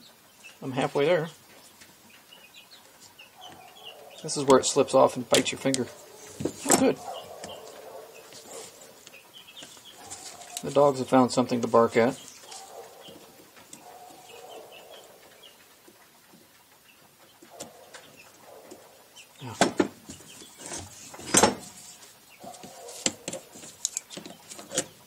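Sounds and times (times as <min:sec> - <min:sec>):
faint animal calls: 0:02.4 - 0:19.6.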